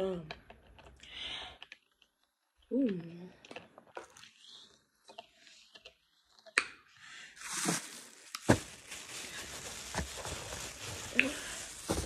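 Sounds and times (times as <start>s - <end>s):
plastic bag crinkling: 7.4s - 12.0s.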